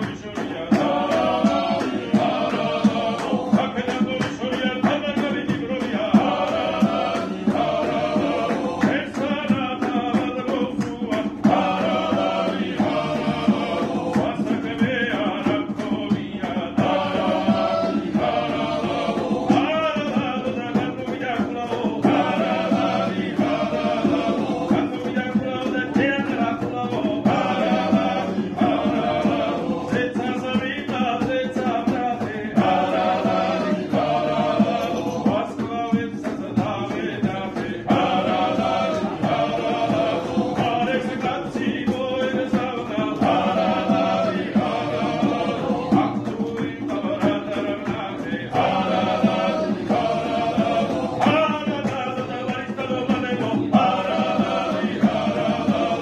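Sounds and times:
low vocal drone: 0.0 - 4.0, 10.5 - 20.0, 36.6 - 52.3
voices singing together: 0.0 - 56.0.

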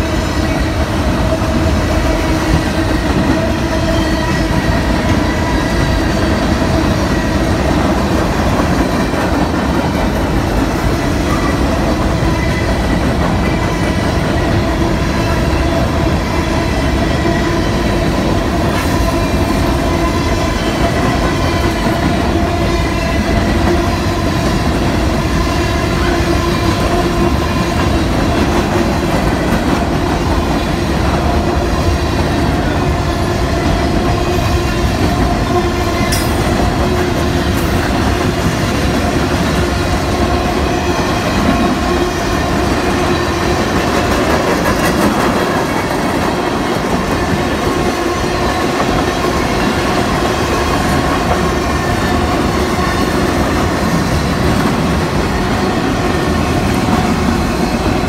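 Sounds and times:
train wheels rumbling on rail: 0.0 - 58.0
thin ringing tone: 36.1 - 36.6.

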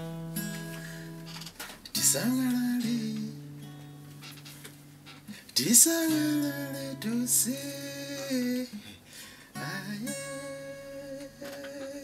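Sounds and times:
acoustic guitar: 0.0 - 12.0
man singing long held notes: 9.6 - 12.0.

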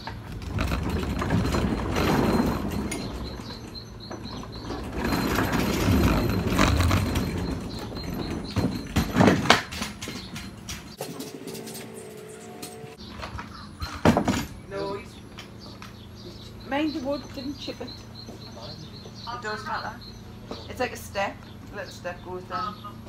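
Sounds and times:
wheels knocking over boards: 0.0 - 12.0, 13.0 - 15.0
scooter wheels rolling on wood: 0.0 - 12.2.

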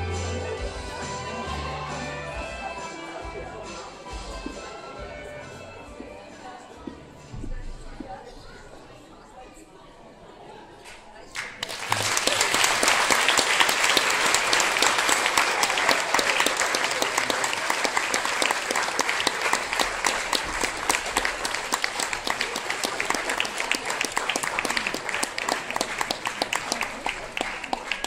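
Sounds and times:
audience applause: 11.3 - 28.0.

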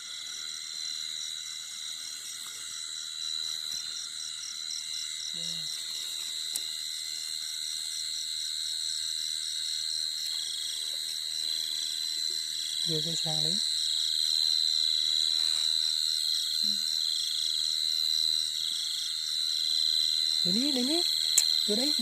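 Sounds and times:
crickets trilling: 0.0 - 22.0
fast pulsing insect chirp: 0.0 - 22.0.

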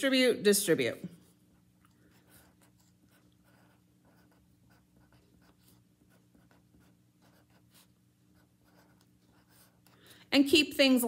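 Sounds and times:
low steady hum: 0.0 - 11.0
felt-tip pen scratching on paper: 1.2 - 10.0.

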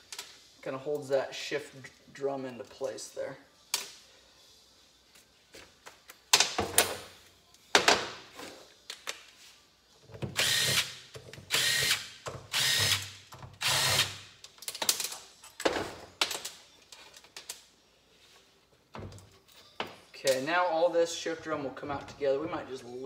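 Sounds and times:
cordless drill bursts: 10.4 - 10.9, 11.5 - 14.2.

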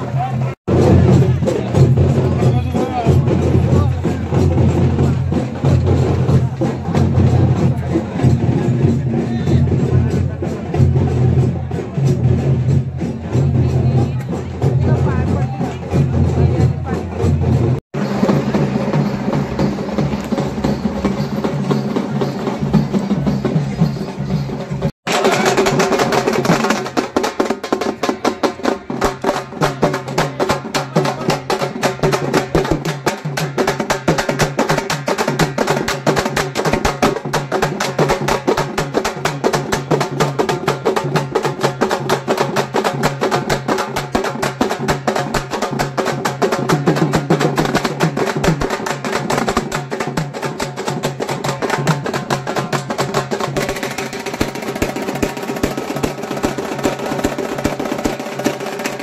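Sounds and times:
fast drumming: 0.0 - 59.0.

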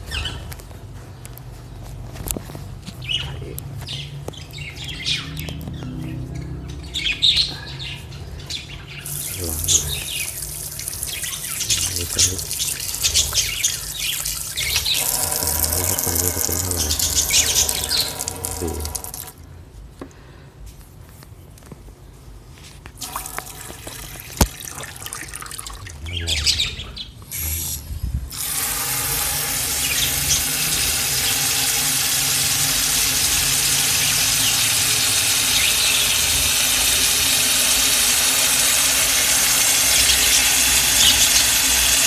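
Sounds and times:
hose spraying water: 9.0 - 19.4, 23.0 - 25.3, 27.3 - 42.0.

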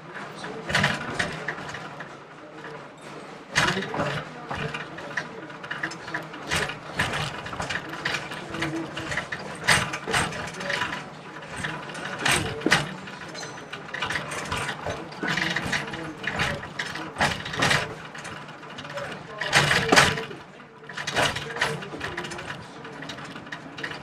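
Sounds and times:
train wheels clattering on track: 0.0 - 24.0.

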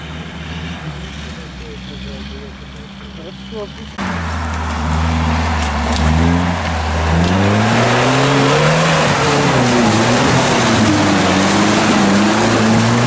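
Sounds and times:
mud and water splashing: 0.0 - 13.0
off-road engine revving: 0.0 - 13.0
tyres spinning in mud: 0.0 - 13.0.

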